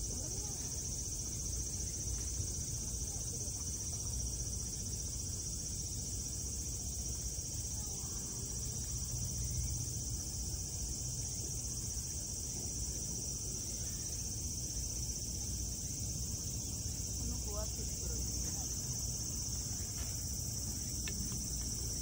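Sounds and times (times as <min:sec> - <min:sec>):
insects chirping: 0:00.0 - 0:22.0.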